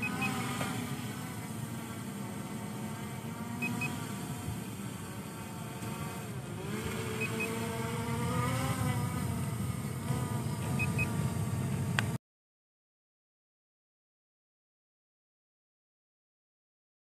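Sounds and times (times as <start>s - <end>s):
drone propellers buzzing: 0.0s - 12.2s.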